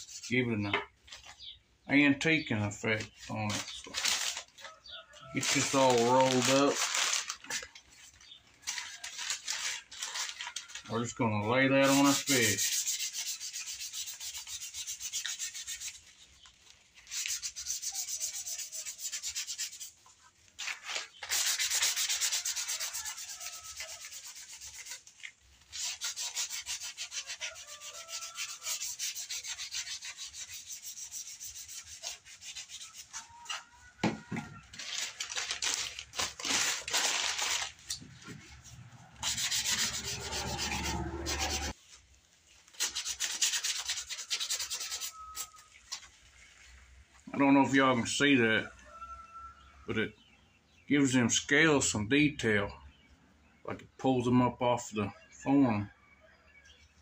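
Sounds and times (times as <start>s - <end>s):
newspaper rubbing scratching hiss: 5.4s - 10.9s, 11.8s - 33.7s, 34.8s - 42.0s, 42.6s - 46.1s.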